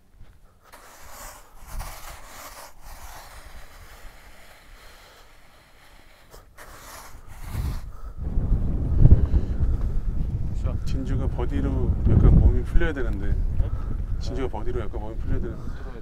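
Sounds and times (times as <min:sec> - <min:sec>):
rake scraping through sand: 0:00.6 - 0:08.2.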